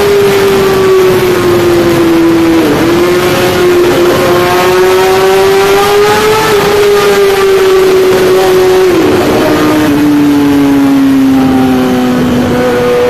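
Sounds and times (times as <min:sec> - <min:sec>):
motorcycle engine at high revs: 0:00.0 - 0:13.0.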